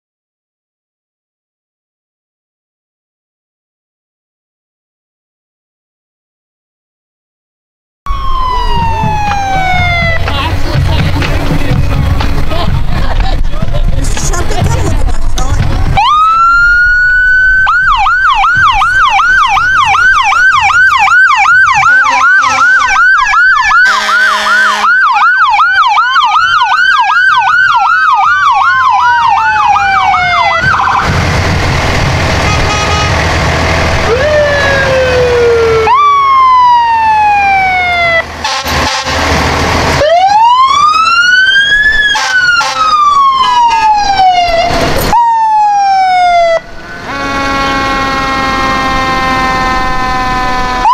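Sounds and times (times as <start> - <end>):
emergency vehicle sirens: 8.1 - 50.9
rushing noise: 29.1 - 45.2.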